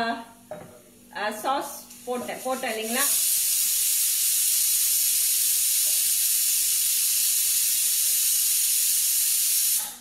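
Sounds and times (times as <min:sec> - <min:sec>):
pressure cooker whistling: 0:02.9 - 0:09.9.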